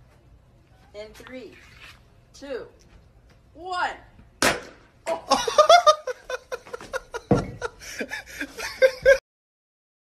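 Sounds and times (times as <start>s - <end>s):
people laughing: 5.2s - 9.2s.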